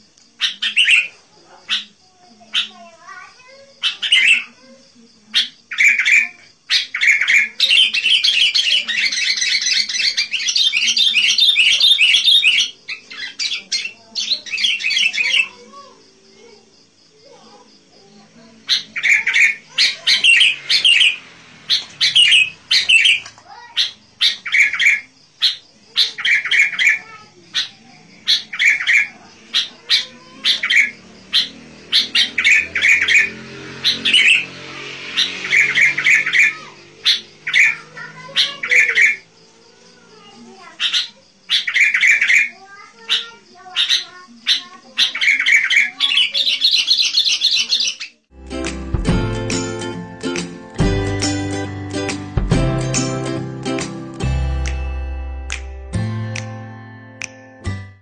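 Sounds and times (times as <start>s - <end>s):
bird harsh chattering calls: 0.4s - 4.6s, 5.2s - 15.7s, 18.6s - 39.4s, 40.6s - 48.2s.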